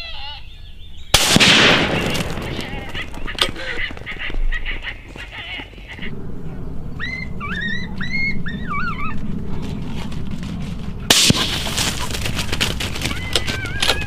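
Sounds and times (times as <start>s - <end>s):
rifle shot: 1.2s - 2.9s, 11.1s - 11.9s
high yelping calls: 2.7s - 9.6s, 11.3s - 14.0s
low steady rumble: 6.0s - 14.0s.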